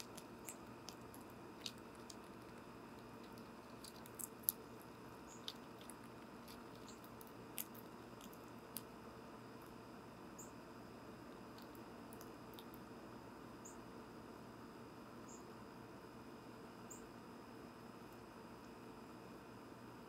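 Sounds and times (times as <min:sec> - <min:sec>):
squirrel crunching seeds: 0:00.0 - 0:09.8, 0:11.2 - 0:12.9.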